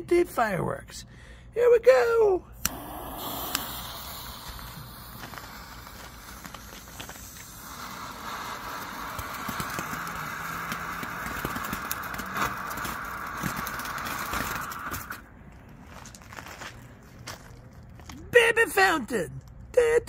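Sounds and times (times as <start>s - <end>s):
fuse fizzing: 2.6s - 15.3s
firework sparks hissing and crackling: 2.6s - 15.4s.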